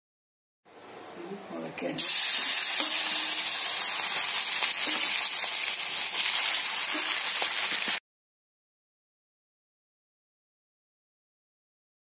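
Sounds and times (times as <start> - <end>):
deep-frying sizzle in oil: 2.0 - 8.0.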